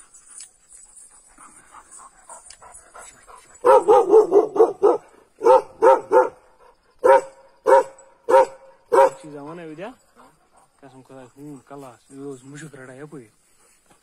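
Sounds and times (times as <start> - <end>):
dog barking: 3.6 - 9.3.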